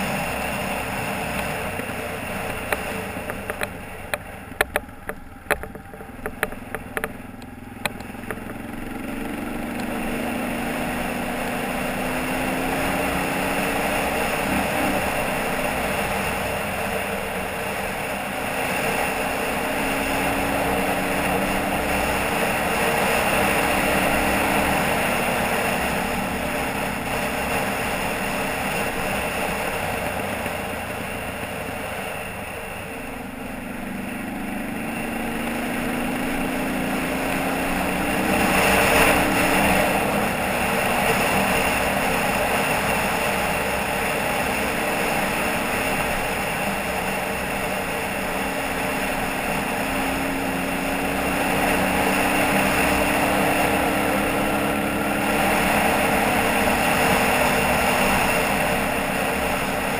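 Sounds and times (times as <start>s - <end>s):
atv engine running: 0.0s - 59.9s
rolling road noise: 0.0s - 59.9s
sharp clicks and knocks: 1.4s - 8.7s.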